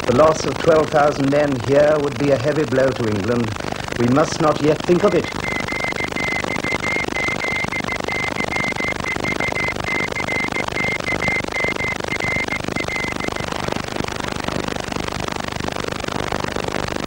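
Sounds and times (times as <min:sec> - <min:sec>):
morse code beeps: 0:04.8 - 0:13.7.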